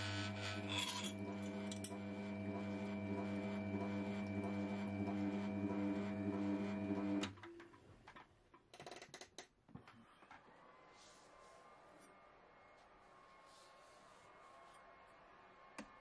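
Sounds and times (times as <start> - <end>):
sharpening machine motor hum: 0.0 - 7.2.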